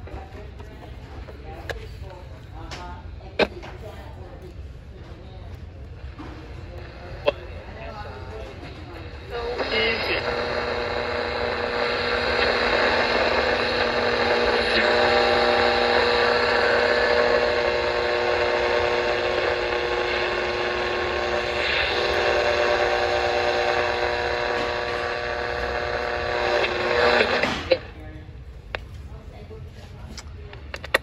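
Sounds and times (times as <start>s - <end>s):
steady whining tones: 0.0s - 31.0s
radio static hiss: 5.8s - 29.4s, 30.4s - 31.0s.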